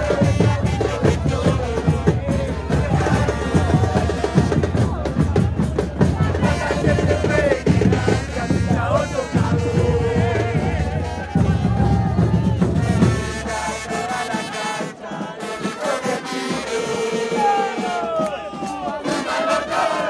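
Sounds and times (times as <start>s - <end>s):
bass drums: 0.0s - 13.6s
crowd singing a chant: 0.0s - 20.0s
trumpets playing: 6.4s - 11.8s, 12.8s - 18.1s.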